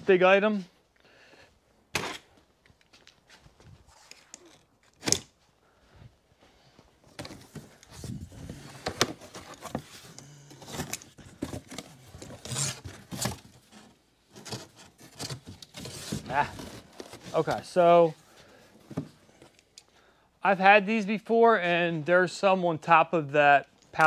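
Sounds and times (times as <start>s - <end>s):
cardboard scraping and rustling: 7.1s - 17.7s.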